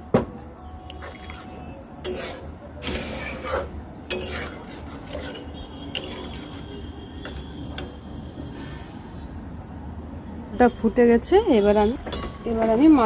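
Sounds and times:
spatula scraping through gravy: 0:02.1 - 0:06.8.

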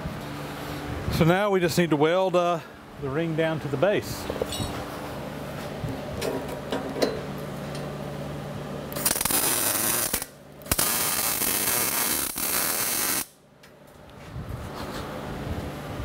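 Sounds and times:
welder low hum: 0:07.7 - 0:13.4
arc welding: 0:08.9 - 0:13.4.

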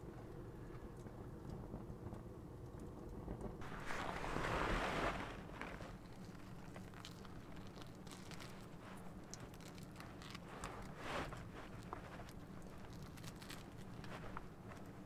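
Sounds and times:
soft rush of noise: 0:03.6 - 0:15.0.

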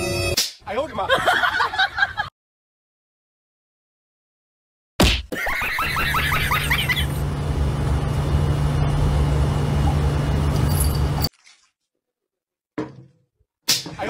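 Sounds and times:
steady low hum: 0:07.0 - 0:11.3.

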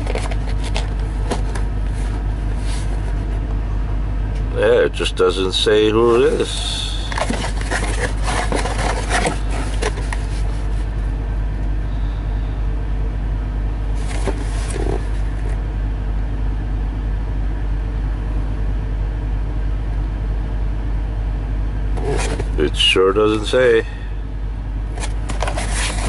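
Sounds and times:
cardboard box rustling and scraping: 0:00.0 - 0:03.4, 0:06.2 - 0:11.1, 0:13.9 - 0:15.6, 0:21.9 - 0:22.7, 0:24.9 - 0:26.0
diesel truck engine idling: 0:00.0 - 0:26.0.

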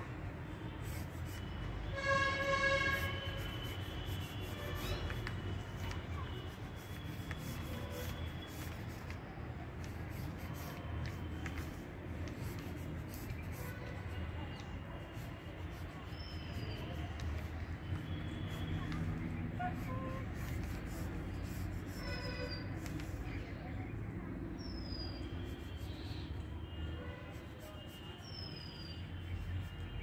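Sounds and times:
drawing stick scratching paper: 0:00.7 - 0:23.4, 0:25.1 - 0:26.5, 0:27.3 - 0:30.0.

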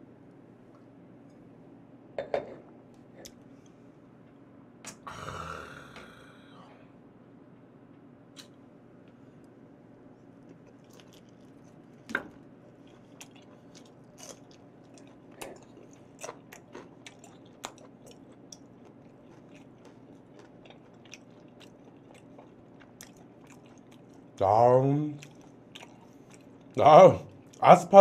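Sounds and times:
crunch of biting peppers: 0:10.4 - 0:11.9, 0:12.7 - 0:24.2
person chewing with wet clicks: 0:10.4 - 0:24.5, 0:25.1 - 0:27.6.

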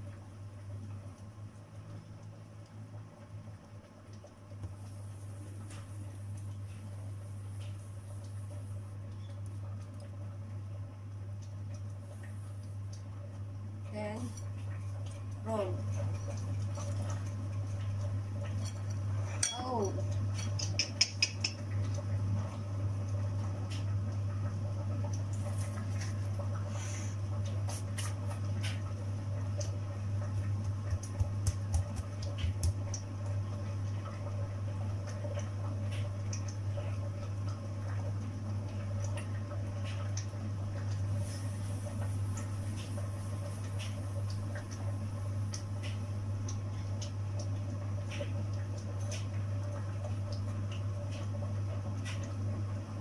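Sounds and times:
steady low hum: 0:00.0 - 0:53.0
hands working dough in breadcrumbs: 0:29.6 - 0:33.5.

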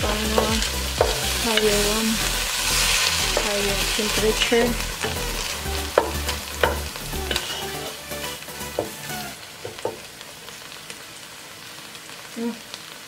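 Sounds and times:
vegetables sizzling in a pan: 0:00.0 - 0:13.0
wooden spatula scraping a pan: 0:00.4 - 0:10.0.

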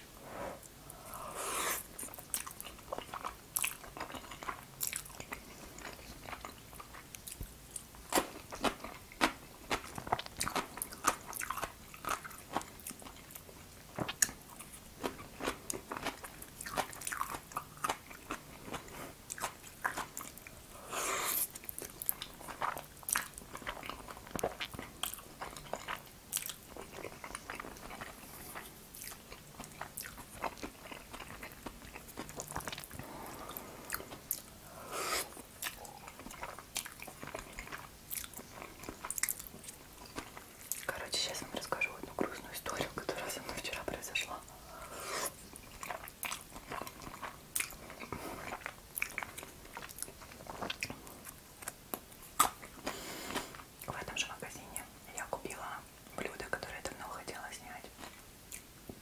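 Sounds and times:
slurping: 0:00.3 - 0:02.0, 0:20.8 - 0:21.6, 0:32.9 - 0:37.6, 0:44.8 - 0:45.4
chewing noodles with mouth clicks: 0:00.6 - 0:43.6, 0:44.2 - 0:57.0, 0:57.9 - 0:59.0.

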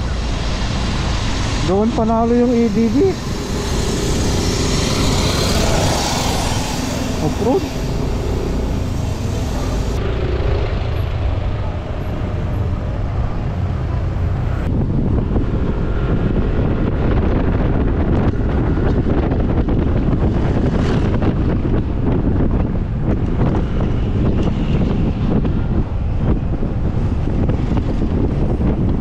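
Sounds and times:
wind rumble on microphone: 0:00.0 - 0:29.0
scooter engine: 0:02.6 - 0:12.9.

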